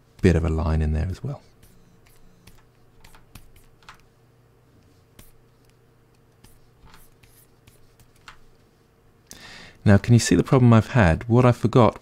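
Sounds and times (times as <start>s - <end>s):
steady low hum: 0.0s - 12.0s
stylus scratching graphics tablet: 1.5s - 3.8s, 5.1s - 5.6s, 6.4s - 8.3s.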